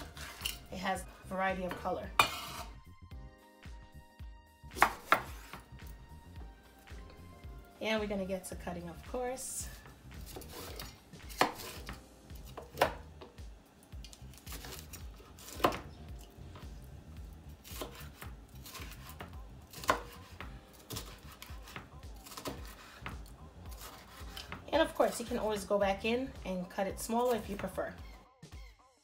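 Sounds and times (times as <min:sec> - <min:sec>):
knife chopping on wooden board: 0:04.7 - 0:05.7, 0:10.2 - 0:13.4, 0:14.4 - 0:15.8, 0:17.6 - 0:24.7.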